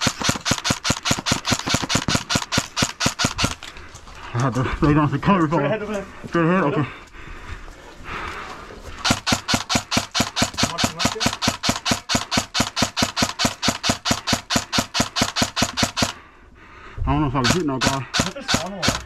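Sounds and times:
airsoft rifle rapid shots: 0:00.0 - 0:03.6, 0:09.0 - 0:16.2, 0:17.4 - 0:19.0.

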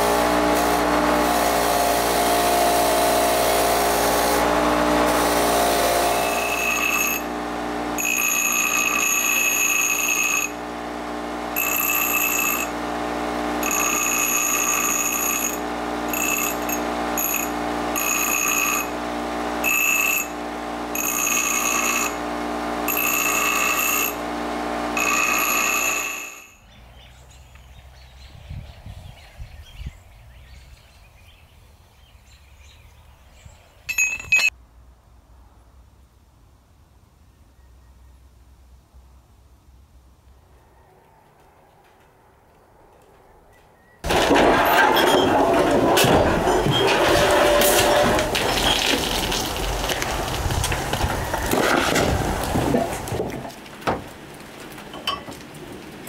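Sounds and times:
bench grinder humming: 0:00.0 - 0:26.6
high-pitched ringing grind: 0:04.4 - 0:10.7, 0:11.5 - 0:26.6, 0:33.9 - 0:34.5
sharp metal clink: 0:33.9 - 0:34.5.

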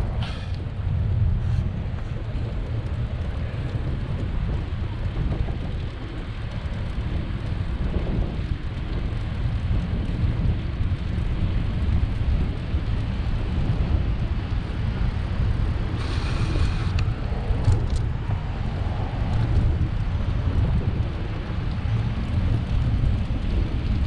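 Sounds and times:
wind buffeting microphone: 0:00.0 - 0:24.0
hiss with whistle-like tone: 0:16.0 - 0:17.0.

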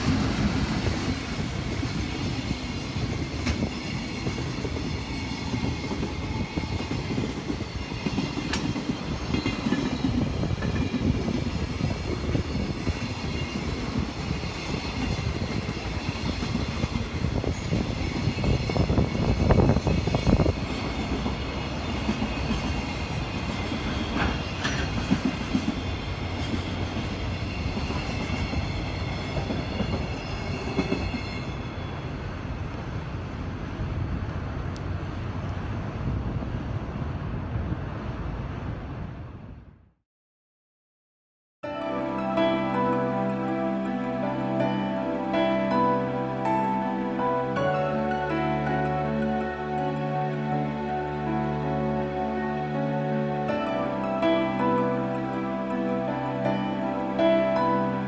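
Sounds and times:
freight train wagons rumbling: 0:00.0 - 0:39.2.

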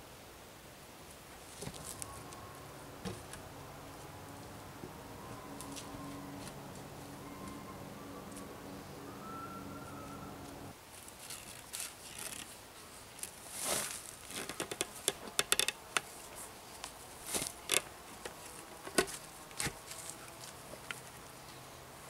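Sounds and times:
short rustles: 0:10.9 - 0:15.0
wooden logs clicking and knocking: 0:14.2 - 0:16.1, 0:17.3 - 0:19.9.

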